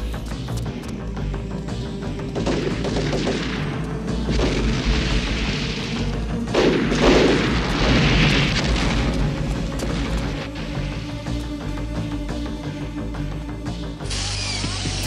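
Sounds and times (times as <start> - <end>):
film music score: 0.0 - 15.0
explosions: 2.4 - 11.0.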